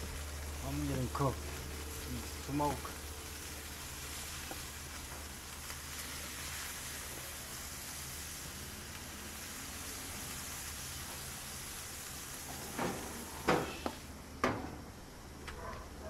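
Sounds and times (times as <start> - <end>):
chicken wings sizzling on grill: 0.0 - 16.0.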